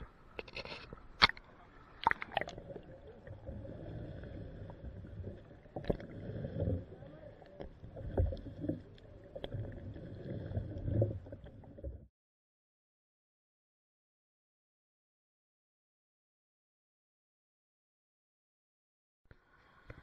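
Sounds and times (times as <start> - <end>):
water churning underwater: 0.0 - 12.1.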